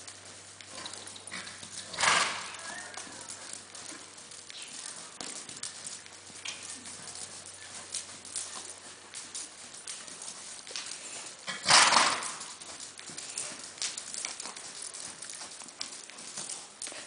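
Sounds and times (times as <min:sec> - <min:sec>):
hoofbeats in sand: 0:00.0 - 0:17.0
horse blowing: 0:01.3 - 0:02.9, 0:11.5 - 0:12.4.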